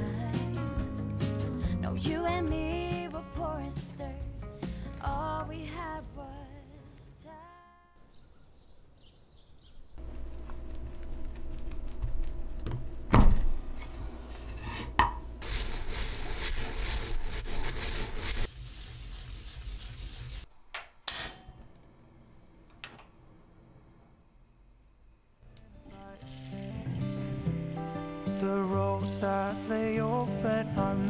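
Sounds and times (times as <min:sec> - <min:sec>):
rubbing or scraping: 0:13.7 - 0:20.5.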